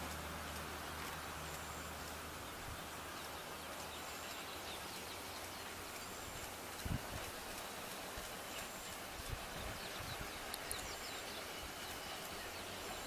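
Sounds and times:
steady outdoor hiss: 0.0s - 13.0s
faint bird chirps: 8.5s - 13.0s.

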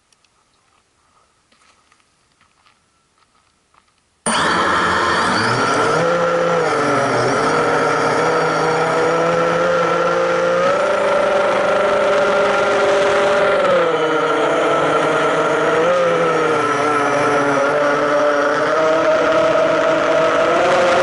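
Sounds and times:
drone propellers whining: 4.3s - 21.0s.

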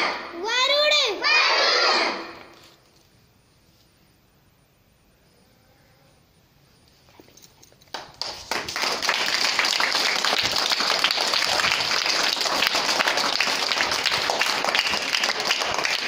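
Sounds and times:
children applauding: 7.9s - 16.0s.

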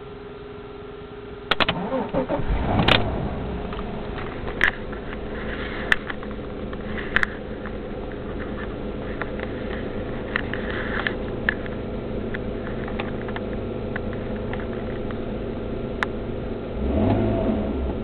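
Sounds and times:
car engine idling: 0.0s - 18.0s
car engine starter cranking: 1.5s - 3.3s.

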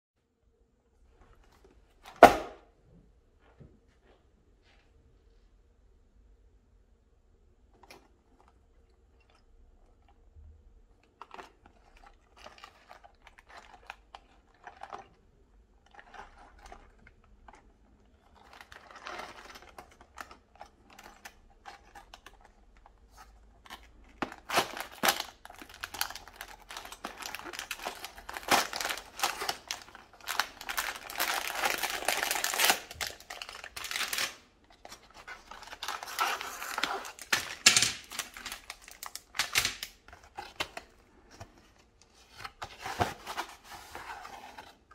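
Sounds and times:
plastic bags crinkling: 23.6s - 41.3s.

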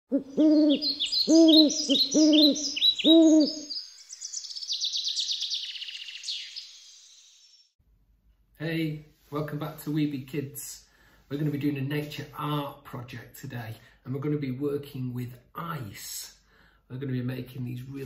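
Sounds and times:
low hooting bird call: 0.1s - 6.8s
higher bird chirping: 0.1s - 7.8s
rapid high bird trill: 0.2s - 7.7s.

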